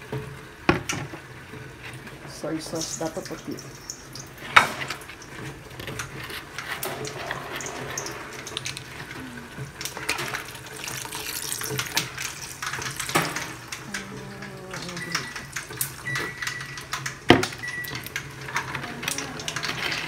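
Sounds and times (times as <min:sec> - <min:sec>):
wooden spoon stirring: 0:01.1 - 0:17.0
liquid splashing in metal pot: 0:02.7 - 0:06.0, 0:09.6 - 0:14.0.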